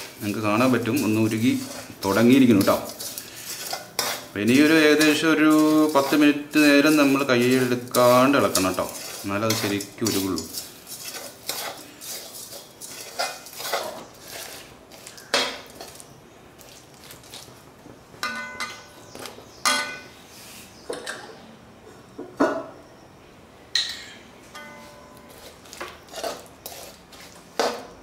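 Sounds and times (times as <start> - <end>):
steel spoon scraping a wok: 0.0 - 16.1, 24.0 - 28.0.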